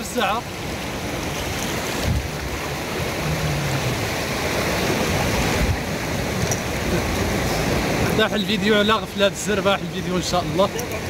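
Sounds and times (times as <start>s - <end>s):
sea surf rushing: 0.0s - 11.0s
wind buffeting the microphone: 0.7s - 8.3s.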